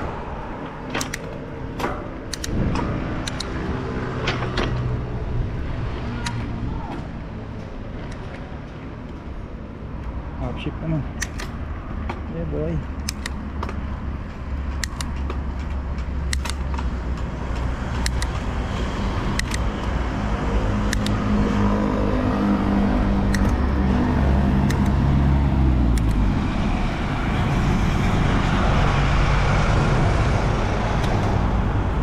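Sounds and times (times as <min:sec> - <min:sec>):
low traffic rumble: 0:00.0 - 0:32.0
sharp clicks: 0:00.9 - 0:03.6, 0:11.2 - 0:11.6, 0:12.9 - 0:13.8, 0:14.7 - 0:18.5, 0:19.2 - 0:20.0, 0:20.9 - 0:21.3, 0:23.3 - 0:23.6, 0:24.6 - 0:25.0, 0:25.9 - 0:26.2.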